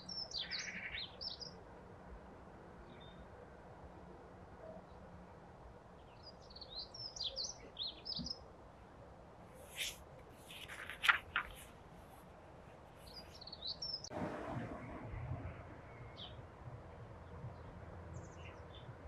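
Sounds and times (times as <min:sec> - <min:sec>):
book pages rustling: 0:09.6 - 0:12.3.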